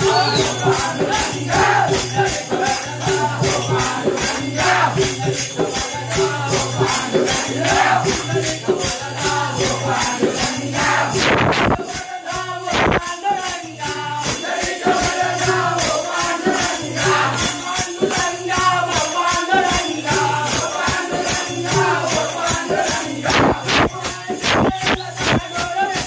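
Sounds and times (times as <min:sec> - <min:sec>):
barrel drum: 0:00.0 - 0:12.1, 0:21.7 - 0:26.0
rhythmic hand-clapping: 0:00.0 - 0:26.0
voices singing in chorus: 0:00.0 - 0:26.0.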